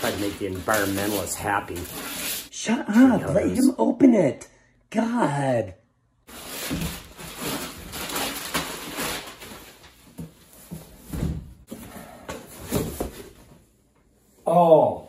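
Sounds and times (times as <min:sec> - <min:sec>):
wrapping paper tearing and rustling: 0:00.0 - 0:02.5, 0:06.3 - 0:10.0.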